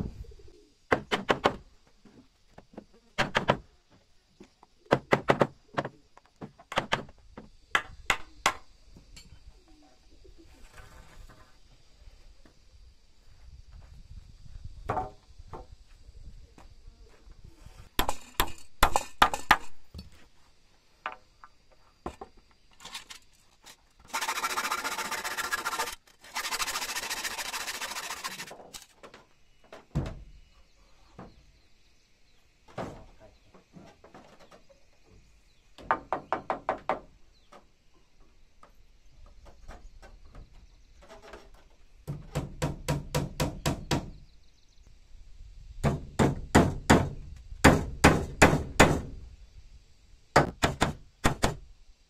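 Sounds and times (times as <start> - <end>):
steady rasping noise: 24.1 - 28.6
hammer hitting nails into wood: 45.8 - 49.1, 50.4 - 51.6.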